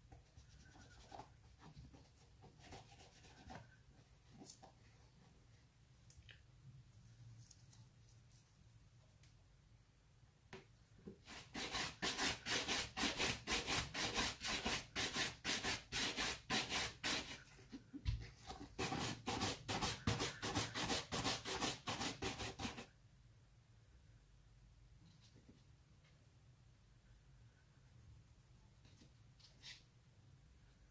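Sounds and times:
brush buffing a leather shoe: 11.3 - 17.4, 18.8 - 22.8.

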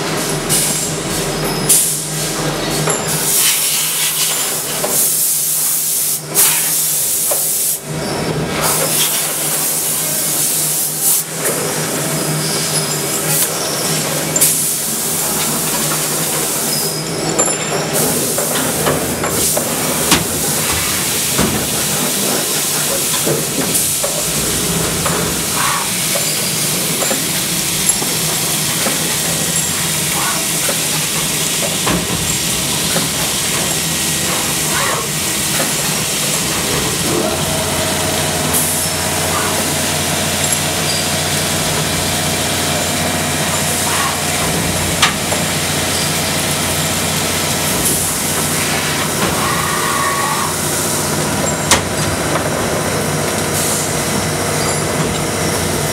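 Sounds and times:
coolant spray hiss: 3.2 - 7.9.

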